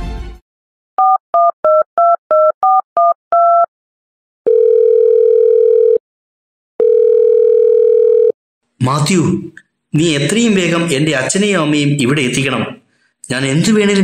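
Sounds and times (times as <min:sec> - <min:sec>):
touch-tone dialling beeps: 0:01.0 - 0:03.7
telephone ringback tones: 0:04.5 - 0:06.0, 0:06.8 - 0:08.3.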